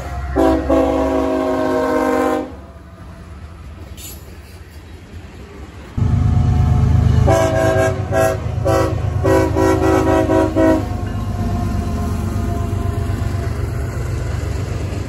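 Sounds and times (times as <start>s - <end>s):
train air horn blasts: 0.0s - 2.7s, 6.0s - 11.1s
diesel locomotive rumbling: 0.0s - 15.0s.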